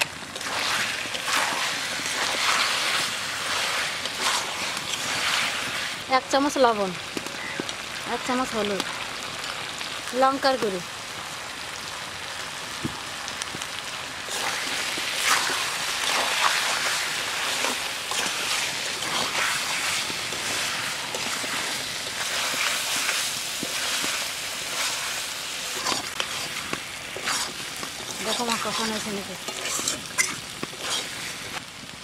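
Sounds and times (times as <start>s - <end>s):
meat sizzling in oil: 0.0s - 32.0s
metal spoon scraping pan: 25.7s - 31.3s.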